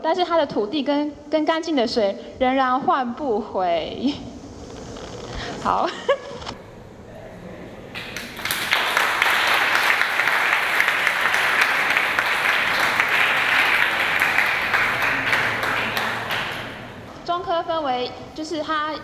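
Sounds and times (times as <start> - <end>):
audience applauding: 7.9 - 17.1.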